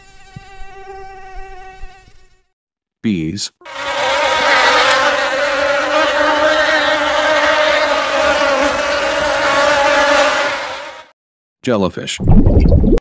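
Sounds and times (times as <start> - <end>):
honeybees buzzing: 0.0 - 2.5, 3.6 - 11.1.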